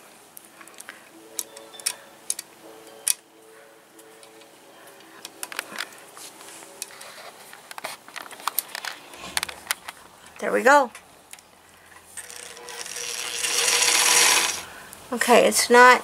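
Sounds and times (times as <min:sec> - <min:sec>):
fingers clicking on metal bobbin: 0:12.2 - 0:14.7.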